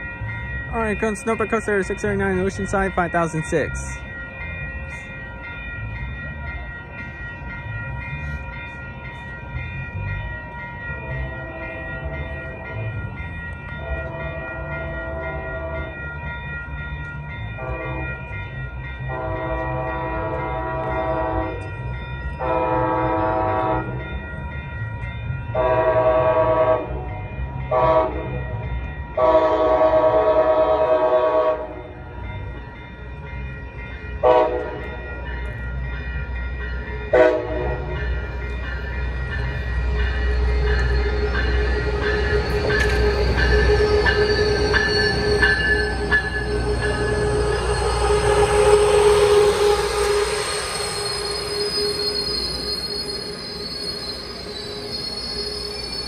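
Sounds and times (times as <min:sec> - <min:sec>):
locomotive rumble: 0:00.0 - 0:56.0
train horn blasts: 0:17.6 - 0:18.2, 0:19.1 - 0:21.7, 0:22.4 - 0:24.0, 0:25.6 - 0:28.3, 0:29.2 - 0:31.8, 0:34.2 - 0:34.8, 0:37.1 - 0:38.0
steady brake squeal: 0:40.2 - 0:56.0.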